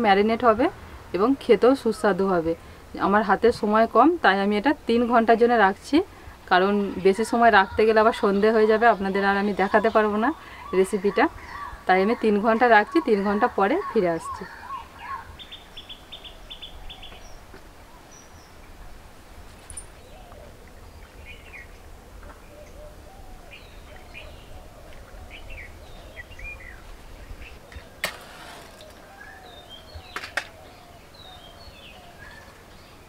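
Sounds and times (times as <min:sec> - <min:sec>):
birds chirping and calling: 0:06.6 - 0:17.5, 0:19.6 - 0:33.0.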